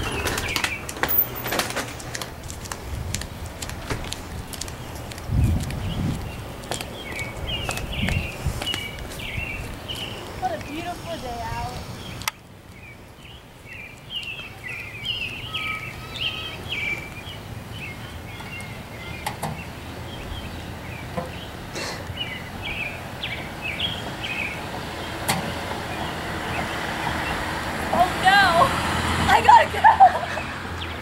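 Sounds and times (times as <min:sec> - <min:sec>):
birds chirping and twittering: 0:00.0 - 0:31.0.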